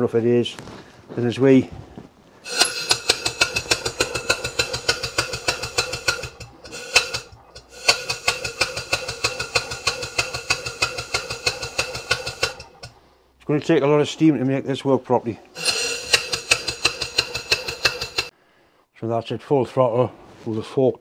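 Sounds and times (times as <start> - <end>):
steam engine exhaust puffs: 2.4 - 13.3, 15.6 - 18.4.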